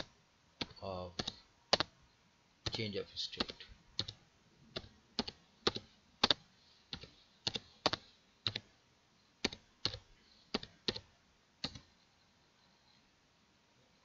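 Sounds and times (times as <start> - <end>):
keyboard keystrokes: 0.0 - 1.9, 2.6 - 8.7, 9.4 - 11.9.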